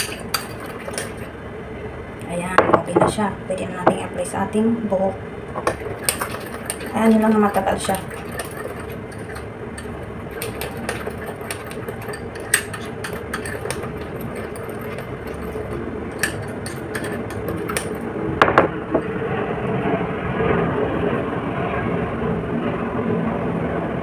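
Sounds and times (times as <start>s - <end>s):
spoon scraping glass bowl: 0.0s - 1.3s, 5.6s - 18.1s
steady background noise: 0.0s - 24.0s.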